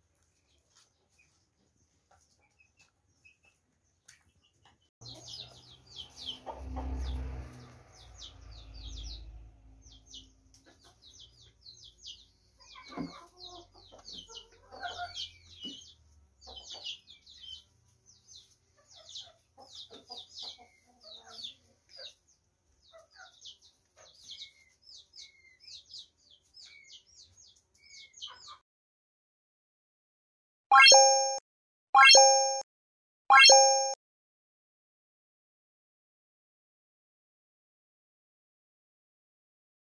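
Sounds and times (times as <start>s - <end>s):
peafowl chicks peeping: 0.2s - 28.6s, 30.7s - 31.4s.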